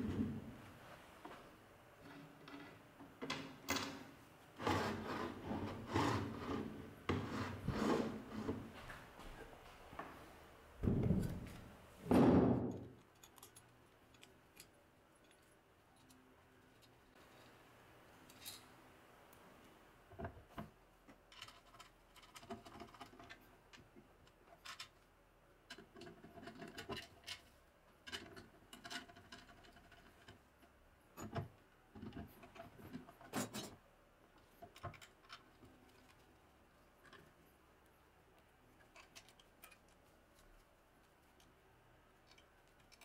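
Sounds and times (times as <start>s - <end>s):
faint metal clicks and scrapes: 12.7s - 19.4s, 20.1s - 43.0s.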